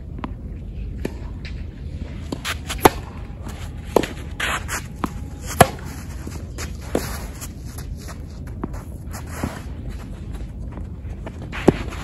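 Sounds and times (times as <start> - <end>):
racket hitting tennis ball: 1.0 - 7.8, 11.3 - 12.0.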